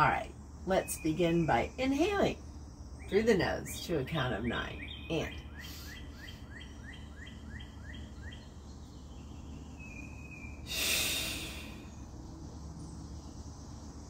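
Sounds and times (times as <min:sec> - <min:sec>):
bird chirping: 0:00.0 - 0:14.0
breath blown through lips: 0:10.7 - 0:11.9.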